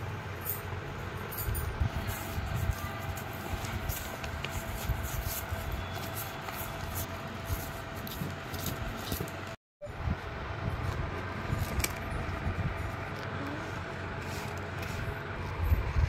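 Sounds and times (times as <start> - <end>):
low steady rumble: 0.0 - 16.0
broom brushing on cardboard: 2.0 - 9.3, 13.7 - 15.6.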